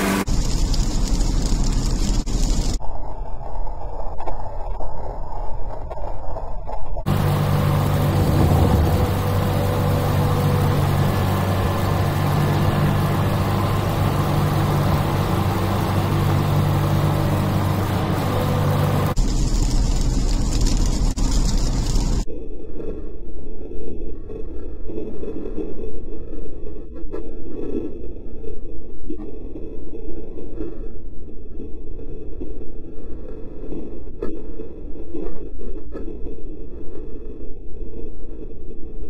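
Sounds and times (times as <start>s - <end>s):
low engine hum: 0.0s - 2.8s, 7.0s - 22.3s
tyre and road noise: 0.0s - 2.8s, 7.0s - 22.3s
deep rumble with hiss: 7.1s - 22.3s.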